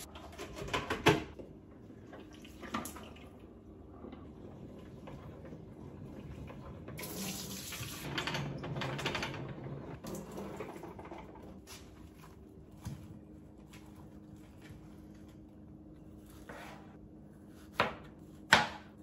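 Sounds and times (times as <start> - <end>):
tap running water: 4.8 - 8.4.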